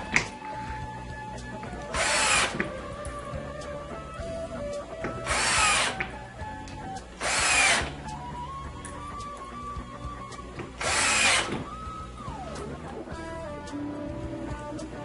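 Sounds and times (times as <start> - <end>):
cordless drill driving screws: 1.8 - 3.0, 5.0 - 6.2, 7.2 - 8.2, 10.6 - 11.9.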